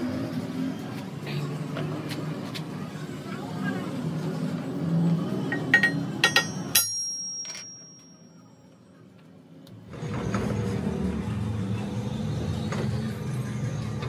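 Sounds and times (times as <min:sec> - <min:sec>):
metal clinking on metal: 0:05.7 - 0:08.4.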